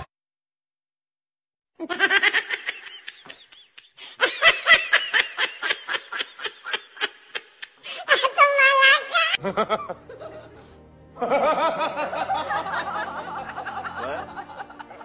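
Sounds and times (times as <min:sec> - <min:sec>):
person giggling: 0:01.8 - 0:08.4.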